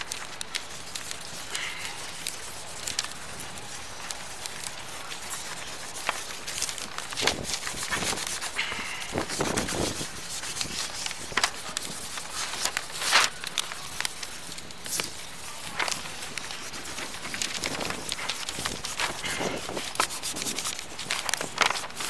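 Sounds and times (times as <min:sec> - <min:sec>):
paper rustling: 0:00.0 - 0:22.0
pen scratching on paper: 0:04.8 - 0:13.1, 0:14.9 - 0:22.0.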